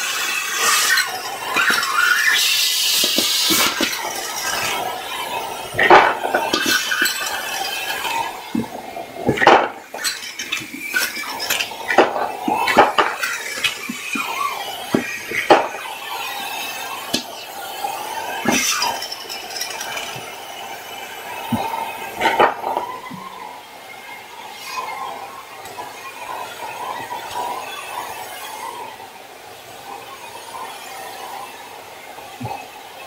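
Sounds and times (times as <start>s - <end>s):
batteries rattling in a hose: 0.0s - 23.2s
vacuum cleaner running: 0.0s - 33.0s.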